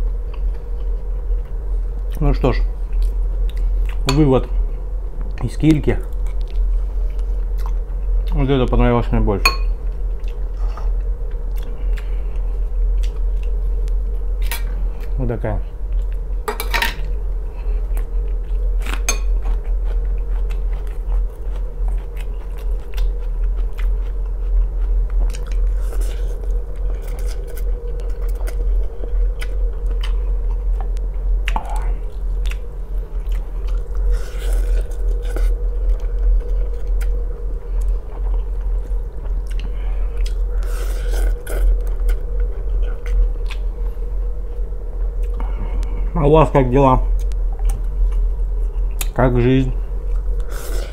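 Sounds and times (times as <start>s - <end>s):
steady low hum: 0.0s - 50.9s
chewing: 6.2s - 8.4s, 17.9s - 43.7s.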